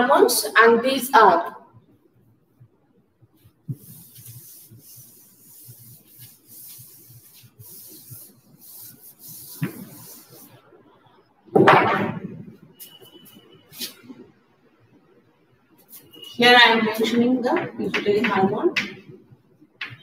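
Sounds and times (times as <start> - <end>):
duster wiping chalkboard: 3.4 - 10.6, 12.8 - 14.0
loud thump: 11.5 - 12.6.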